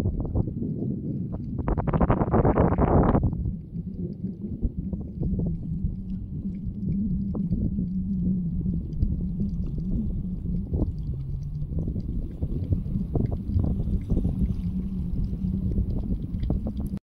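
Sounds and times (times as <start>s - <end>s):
wind on microphone: 0.0s - 17.0s
boat engine droning: 3.4s - 17.0s.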